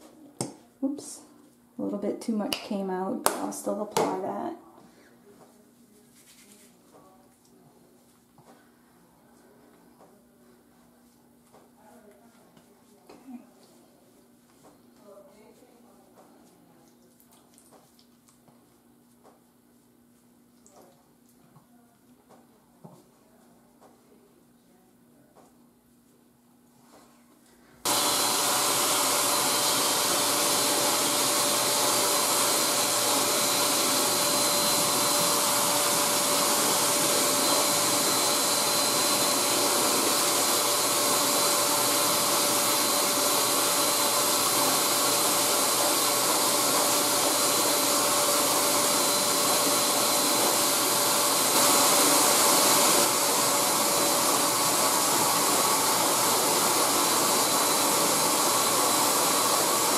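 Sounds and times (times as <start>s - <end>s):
pet dryer blowing air: 27.8s - 59.9s.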